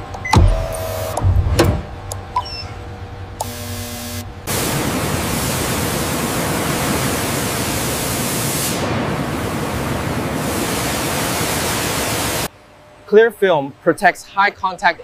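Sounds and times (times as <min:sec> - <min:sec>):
loud rushing hiss: 0:04.5 - 0:12.5.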